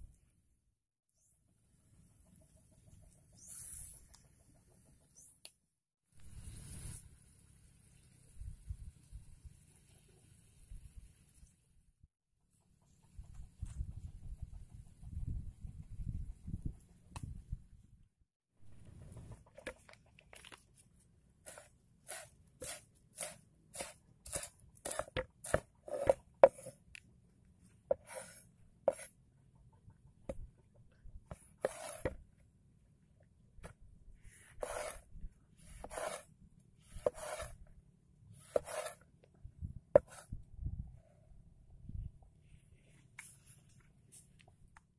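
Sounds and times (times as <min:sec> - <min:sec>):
knife chopping on wooden board: 0:21.5 - 0:26.7, 0:35.8 - 0:36.2, 0:37.0 - 0:37.5, 0:38.5 - 0:39.0.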